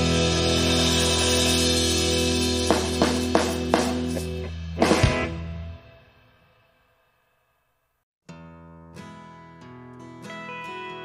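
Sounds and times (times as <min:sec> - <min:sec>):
guitar chord ringing: 0:08.3 - 0:11.0.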